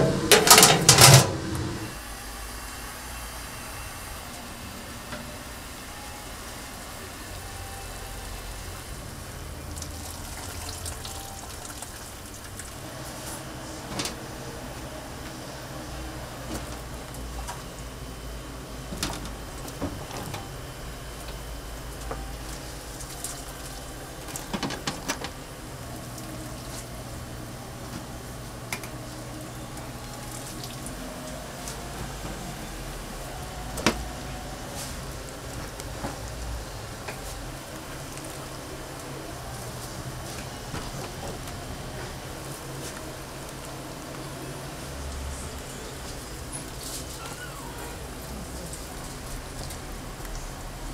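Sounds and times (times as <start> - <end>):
utensils knocking and clattering: 0.0 - 1.9
steady cooking hiss: 0.0 - 50.9.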